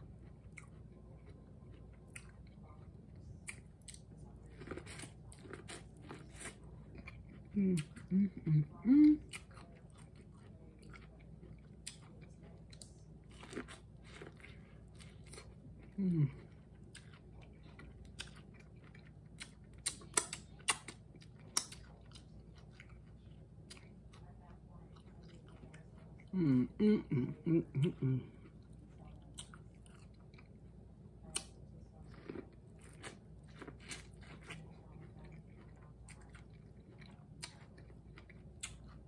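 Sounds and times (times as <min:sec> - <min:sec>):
person chewing food: 0:00.0 - 0:39.0
person humming mm: 0:07.6 - 0:09.2, 0:16.0 - 0:16.4, 0:26.4 - 0:28.4.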